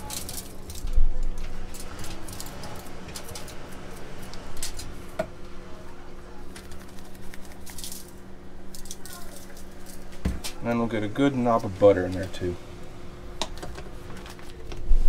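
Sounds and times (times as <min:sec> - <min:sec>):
aluminium foil crinkling: 0:00.0 - 0:05.1, 0:06.4 - 0:10.6
steady low hum: 0:00.0 - 0:15.0
spice shaker being shaken: 0:06.5 - 0:10.0.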